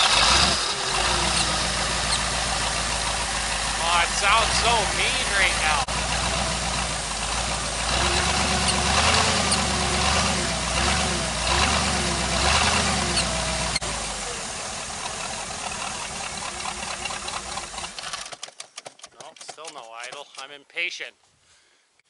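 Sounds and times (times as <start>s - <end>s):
alternator whine: 0.0s - 11.4s, 12.0s - 18.0s
car engine idling: 0.0s - 18.4s.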